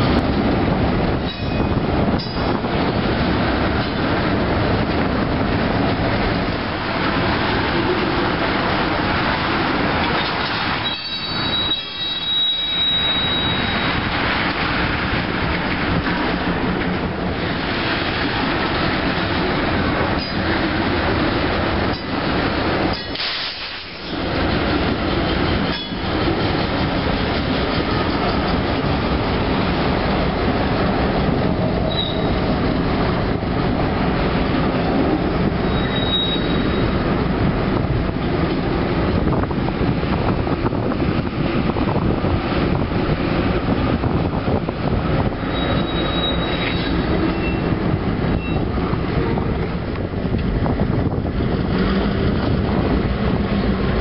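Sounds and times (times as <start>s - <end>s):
diesel locomotives passing: 0.0s - 54.0s
train wheels clacking over rail joints: 7.0s - 12.3s, 13.9s - 29.1s
high wheel squeal: 10.8s - 14.0s, 31.9s - 32.4s, 35.6s - 37.0s, 45.4s - 47.7s.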